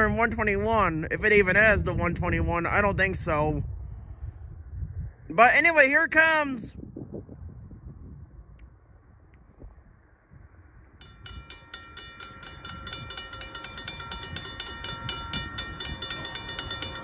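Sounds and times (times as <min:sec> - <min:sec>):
low train rumble: 0:09.0 - 0:17.0
railroad crossing bell ringing: 0:11.0 - 0:17.0.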